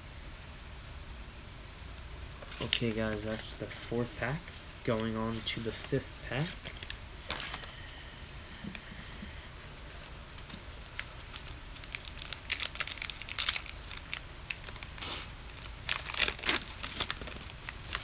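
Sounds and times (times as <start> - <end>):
wrapper tearing and crinkling: 10.0 - 18.0.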